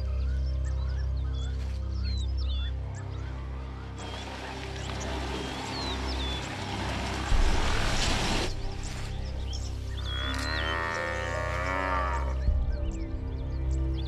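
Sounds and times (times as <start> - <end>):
birds chirping: 0.0 - 14.0
herd of buffalo rushing: 4.0 - 8.9
buffalo bellowing: 10.0 - 12.4.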